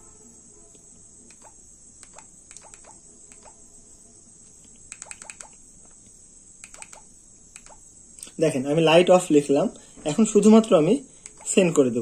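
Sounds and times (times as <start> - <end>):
high-pitched whine: 0.0 - 12.0
phone keypad buttons clicking: 1.3 - 3.6, 4.9 - 5.6, 6.6 - 7.8.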